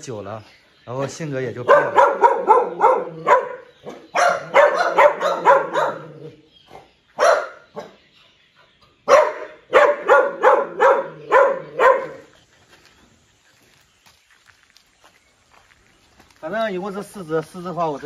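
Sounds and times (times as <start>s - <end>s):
dogs barking: 1.5s - 8.1s, 9.0s - 12.4s.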